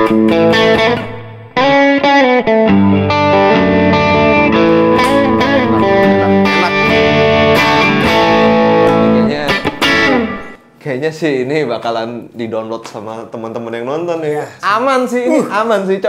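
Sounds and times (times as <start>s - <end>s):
overdriven electric guitar: 0.0s - 10.6s.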